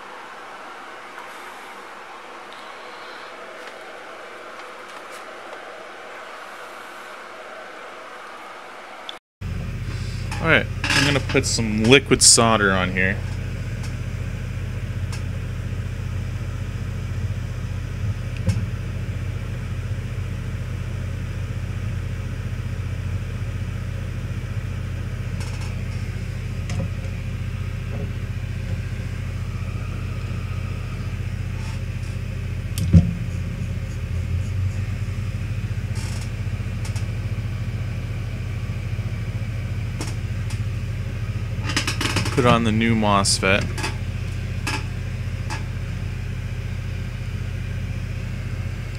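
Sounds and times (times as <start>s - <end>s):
fan humming: 0.0s - 48.9s.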